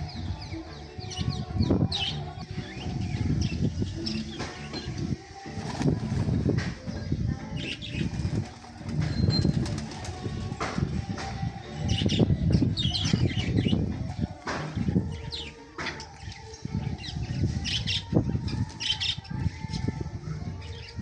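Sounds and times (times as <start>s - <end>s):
pigeon wings flapping: 8.1s - 10.4s.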